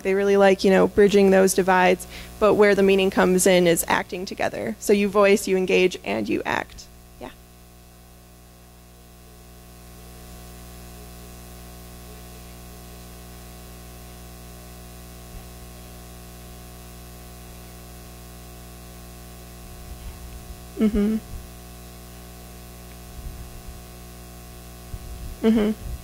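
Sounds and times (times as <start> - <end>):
low mains hum: 0.0 - 26.0
steady electrical hiss: 0.0 - 26.0.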